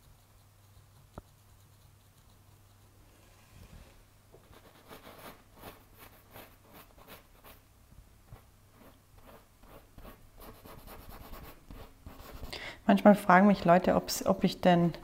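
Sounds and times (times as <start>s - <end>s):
paintbrush scratching on canvas: 0.0s - 7.6s, 8.4s - 12.5s.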